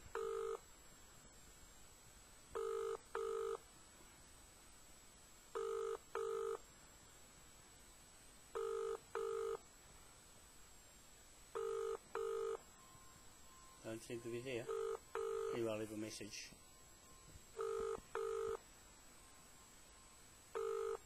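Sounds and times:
telephone ringback tone: 0:00.1 - 0:00.6, 0:02.6 - 0:03.6, 0:05.5 - 0:06.6, 0:08.5 - 0:09.6, 0:11.5 - 0:18.6, 0:19.2 - 0:21.0.

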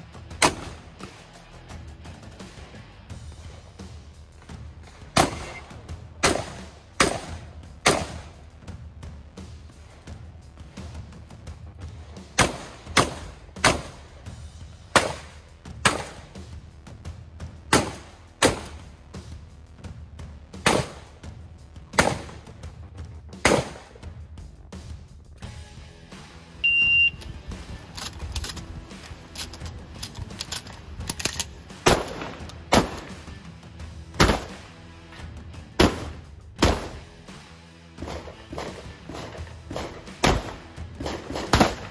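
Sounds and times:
background music: 0:00.0 - 0:41.9
shotgun shots: 0:00.4 - 0:00.9, 0:05.1 - 0:08.4, 0:12.3 - 0:14.1, 0:14.9 - 0:16.4, 0:17.7 - 0:18.9, 0:20.6 - 0:21.1, 0:21.9 - 0:22.5, 0:23.4 - 0:24.0, 0:31.7 - 0:33.3, 0:34.2 - 0:34.7, 0:35.8 - 0:37.1, 0:38.0 - 0:41.9
shot timer beep: 0:26.6 - 0:27.3.

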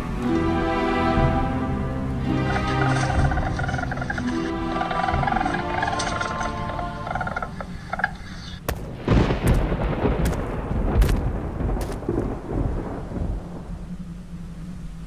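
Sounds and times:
music: 0:00.0 - 0:08.5
deep rumble: 0:01.2 - 0:15.0
sharp cracks: 0:02.6 - 0:12.5.

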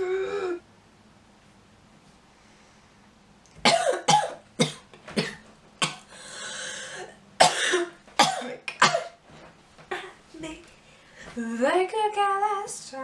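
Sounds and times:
girl coughing: 0:03.6 - 0:06.1, 0:07.4 - 0:09.2
girl breathing in: 0:06.1 - 0:07.1.

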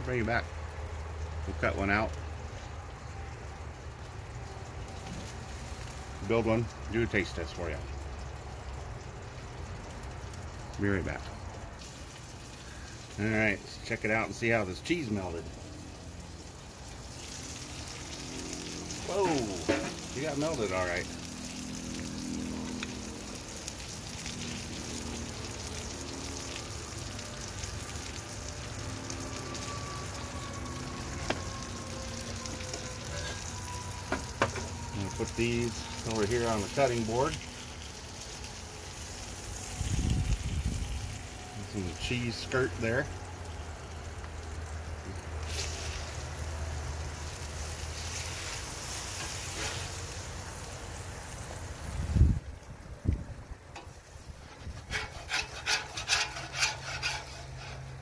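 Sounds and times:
burger patty sizzling on griddle: 0:00.0 - 0:58.0
metal spatula scraping griddle: 0:19.6 - 0:20.1, 0:48.0 - 0:50.0, 0:53.8 - 0:58.0.

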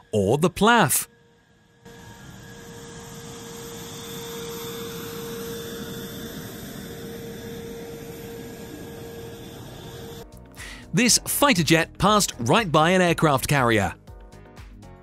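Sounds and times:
jet engines rushing and whining: 0:00.0 - 0:10.2.

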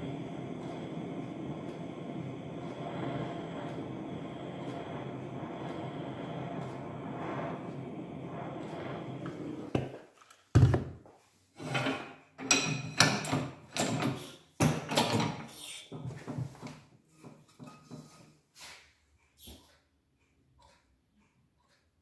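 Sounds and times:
steady machine running: 0:00.0 - 0:09.4
metal clatters and scrapes: 0:11.6 - 0:18.4.

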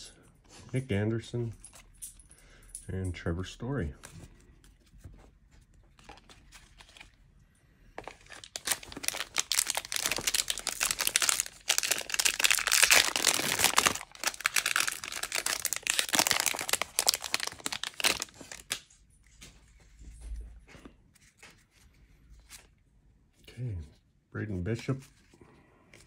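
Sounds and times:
plastic wrapper crinkling and tearing: 0:06.0 - 0:07.2, 0:08.0 - 0:19.0.

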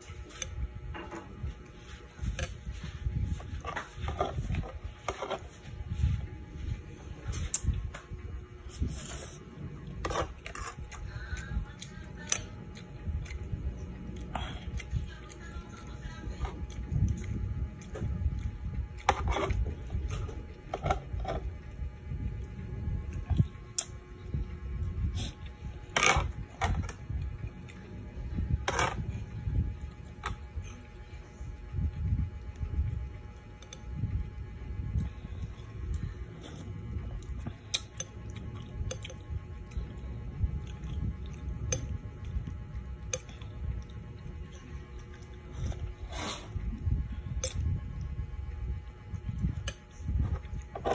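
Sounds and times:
chewing: 0:09.8 - 0:20.8, 0:35.0 - 0:46.8.

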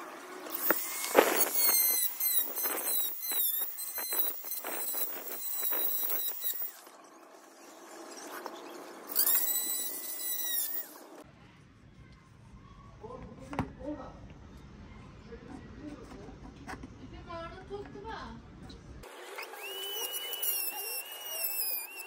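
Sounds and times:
rotary engraving tool whining: 0:00.4 - 0:11.2, 0:19.0 - 0:22.0.

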